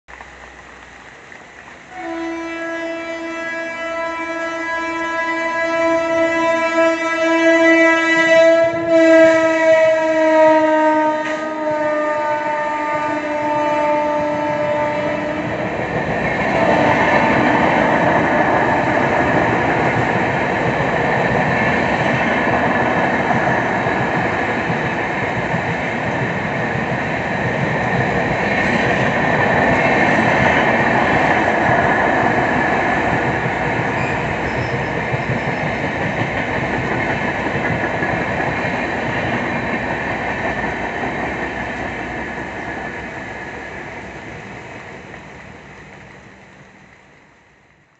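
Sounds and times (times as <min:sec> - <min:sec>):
train wheels rushing on rail: 0:00.1 - 0:47.9
train horn: 0:01.9 - 0:19.9, 0:33.9 - 0:35.8.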